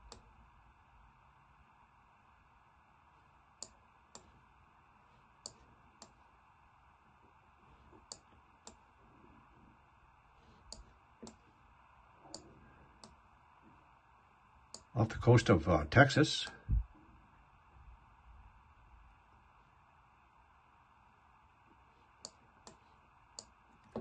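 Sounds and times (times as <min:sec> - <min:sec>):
computer mouse clicking: 0:00.0 - 0:00.4, 0:03.6 - 0:04.4, 0:05.4 - 0:06.2, 0:08.0 - 0:08.8, 0:10.6 - 0:11.5, 0:12.3 - 0:13.2, 0:22.2 - 0:22.8
faint room hiss: 0:00.0 - 0:24.0.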